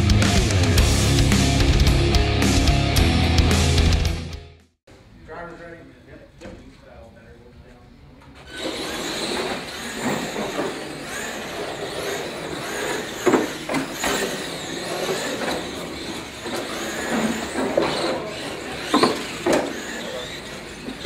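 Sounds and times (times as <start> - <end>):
toy truck motors whining: 8.4 - 21.0.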